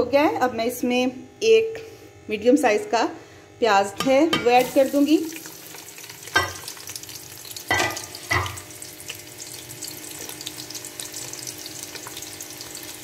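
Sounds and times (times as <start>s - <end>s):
onions sizzling in hot oil: 4.6s - 13.0s.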